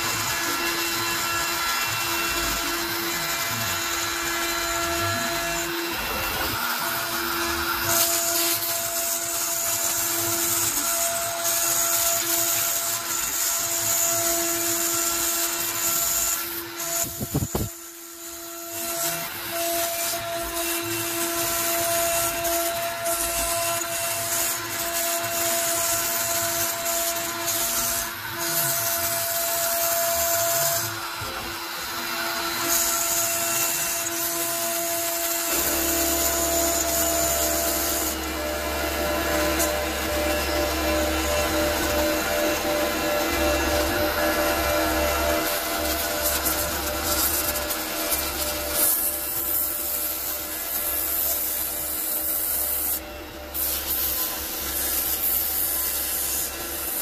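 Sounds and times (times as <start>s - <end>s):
bit cutting acrylic hiss: 0.0s - 57.0s
router spindle whine: 0.0s - 57.0s.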